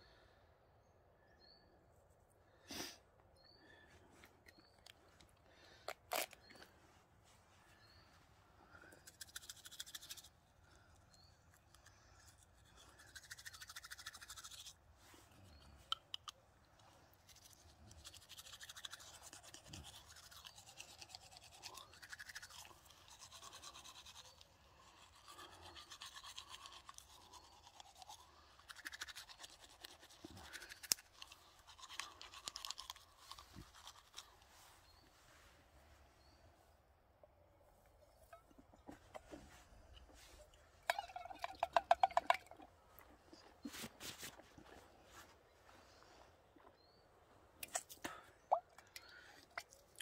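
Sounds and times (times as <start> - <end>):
toothbrush scrubbing teeth: 9.1 - 10.3, 11.8 - 14.7, 17.2 - 34.4.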